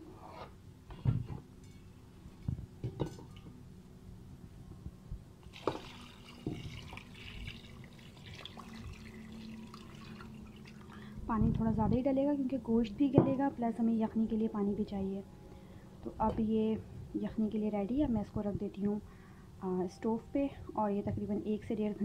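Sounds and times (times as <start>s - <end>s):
water pouring into a pot: 5.5s - 11.0s.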